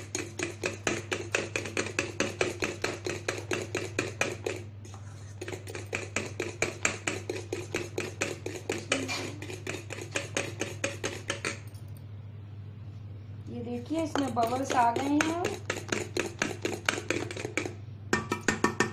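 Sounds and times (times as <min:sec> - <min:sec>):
spoon clinking against metal bowl: 0:13.9 - 0:17.5.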